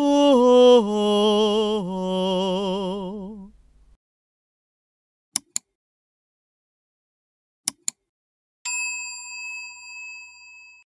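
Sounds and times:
notification bell ding: 8.7 - 10.9.

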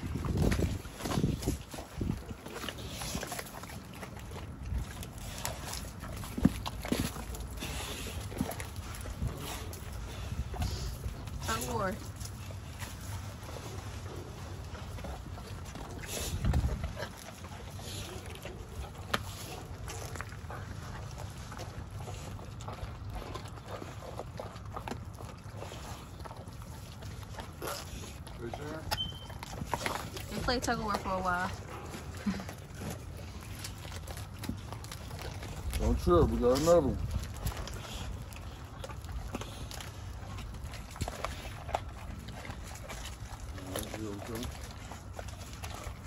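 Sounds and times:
wind rumble on microphone: 0.0 - 3.2, 15.0 - 17.3
puppies chewing and crunching: 0.0 - 46.0
wet tearing sounds: 0.0 - 46.0.

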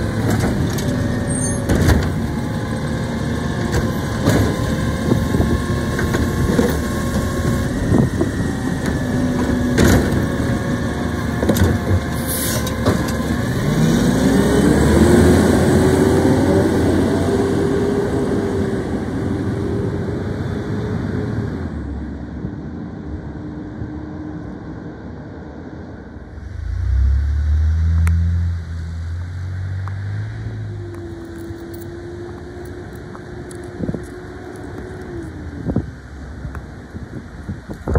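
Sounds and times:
garbage truck engine whining: 0.0 - 21.8
distant truck engine: 0.0 - 37.0.

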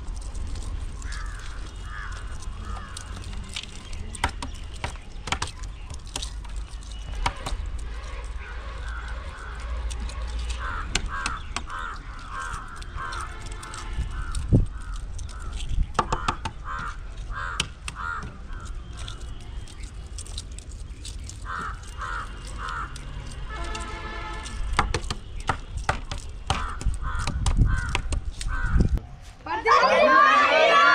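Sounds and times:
crows cawing: 0.6 - 4.0, 7.4 - 19.4, 21.3 - 24.5, 26.5 - 29.0.

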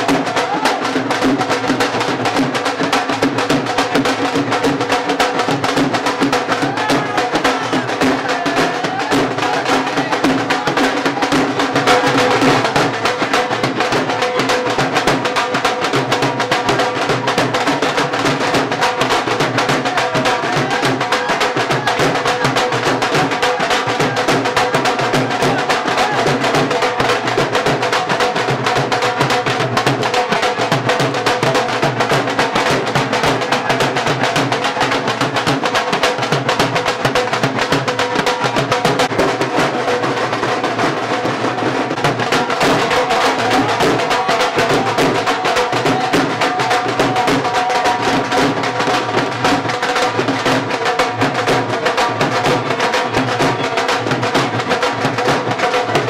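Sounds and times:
music with fast drumming: 0.0 - 56.0.

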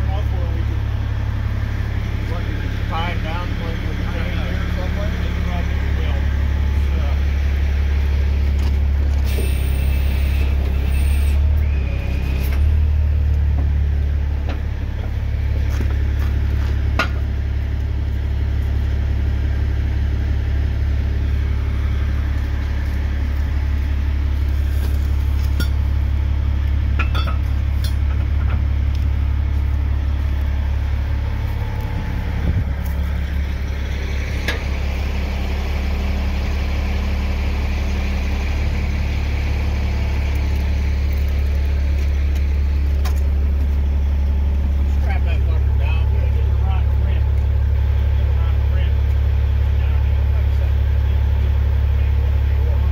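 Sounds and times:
truck engine idling: 0.0 - 52.9.

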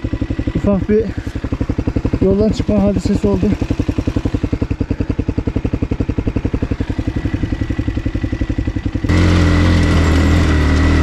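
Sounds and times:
motocross bike engine idling: 0.0 - 11.0.

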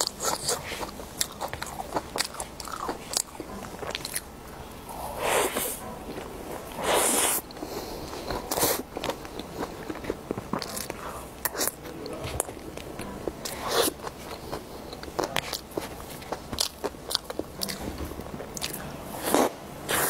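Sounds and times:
person chewing cake: 0.0 - 20.0.

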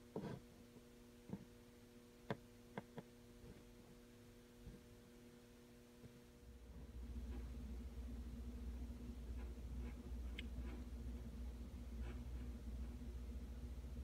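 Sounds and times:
faint electrical hum: 0.0 - 14.0.

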